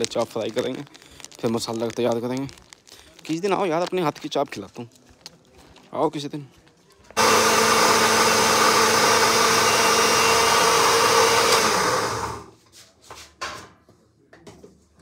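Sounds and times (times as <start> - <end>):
small electric motor running: 7.2 - 12.5.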